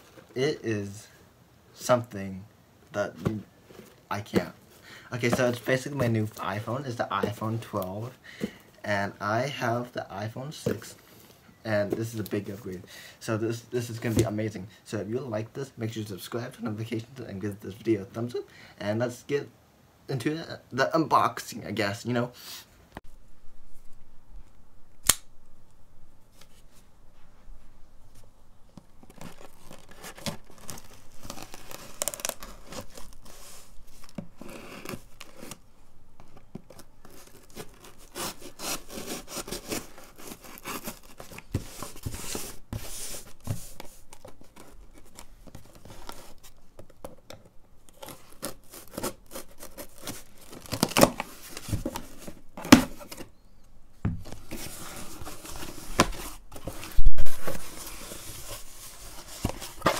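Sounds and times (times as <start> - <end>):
tape ripping: 29.0 - 35.6, 36.7 - 42.4, 47.9 - 53.2
knife scraping packing tape: 29.2 - 33.6, 37.1 - 43.3, 48.0 - 51.2.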